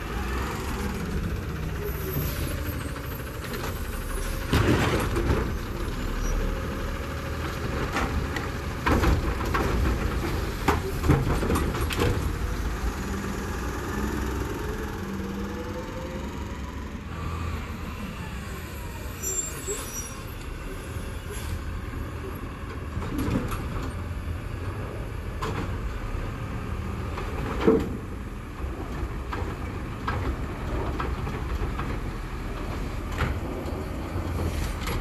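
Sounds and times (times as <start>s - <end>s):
truck engine running: 0.0s - 18.8s
truck arm dumping cart: 0.0s - 20.7s, 21.4s - 35.0s.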